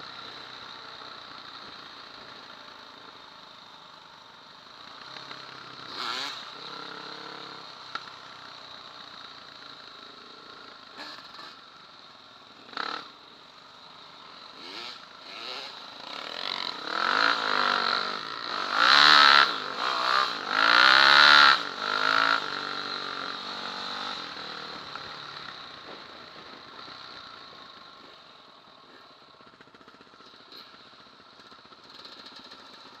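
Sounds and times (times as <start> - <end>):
motorcycle engine revving: 4.8 - 11.6, 12.6 - 13.2, 14.3 - 28.2.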